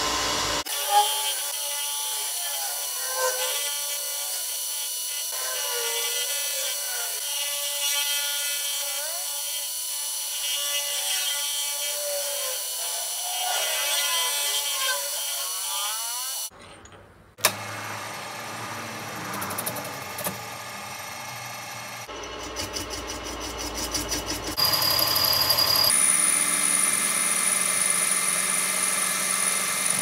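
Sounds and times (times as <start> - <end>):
milling cutter whining on metal: 17.4 - 30.0.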